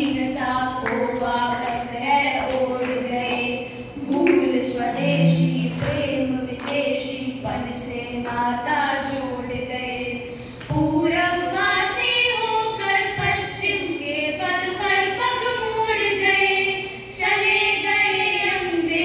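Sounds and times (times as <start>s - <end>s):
girls singing: 0.0s - 19.0s.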